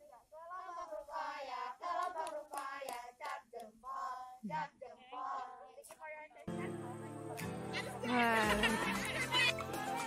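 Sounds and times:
girls singing a chant-like song: 0.0 - 6.4.

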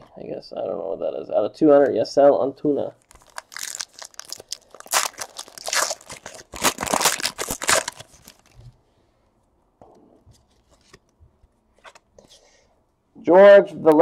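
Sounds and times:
foil wrapper tearing and crinkling: 3.0 - 8.6.

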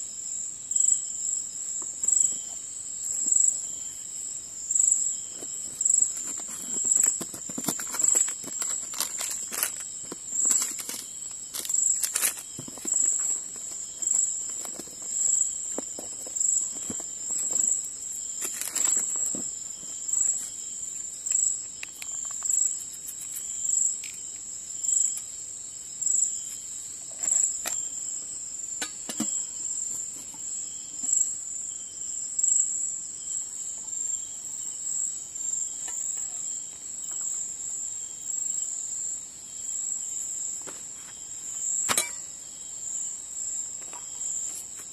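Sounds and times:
insects trilling: 0.0 - 44.9
packets and cookware rustling: 5.3 - 20.4.

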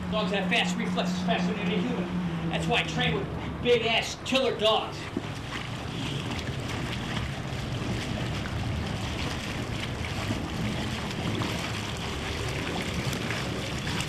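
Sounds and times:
pool water splashing: 0.0 - 14.0
wind buffeting microphone: 4.8 - 14.0.

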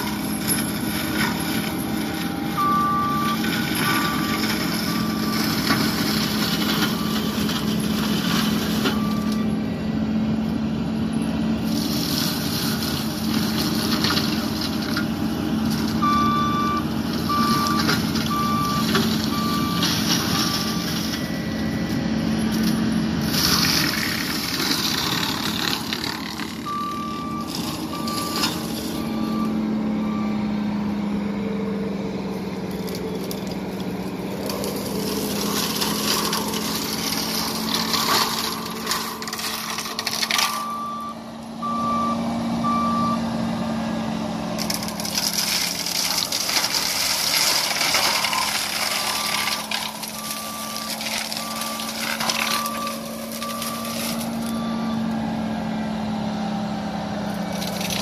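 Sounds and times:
diesel engine running: 0.0 - 58.0
backup alarm beeping: 2.2 - 5.4, 16.0 - 20.9
mulching head grinding brush: 31.1 - 41.0.

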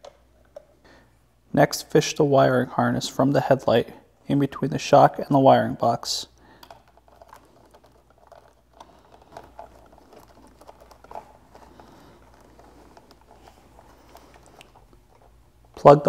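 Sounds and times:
wiring rustling: 5.8 - 16.0
plastic connectors clicking: 6.5 - 15.3.

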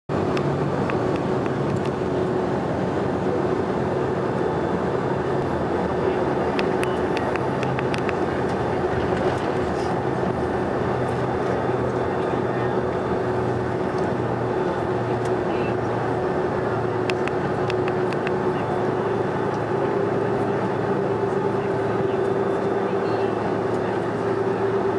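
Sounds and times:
aircraft cabin engine drone: 0.1 - 24.9.

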